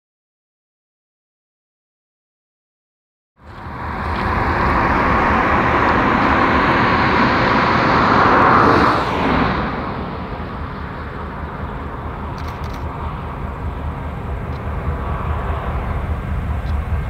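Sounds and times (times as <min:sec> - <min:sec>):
road vehicle passing: 0:03.4 - 0:17.0.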